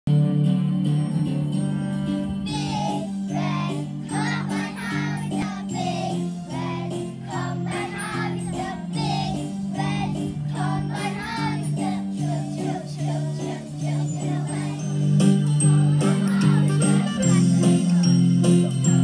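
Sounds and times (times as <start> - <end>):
backing music: 0.1 - 19.0
people singing: 2.5 - 15.0.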